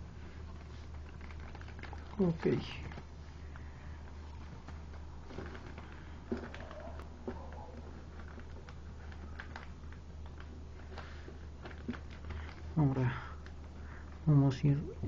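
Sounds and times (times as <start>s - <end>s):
low electrical hum: 0.0s - 15.0s
paper rustling and crinkling: 0.1s - 14.2s.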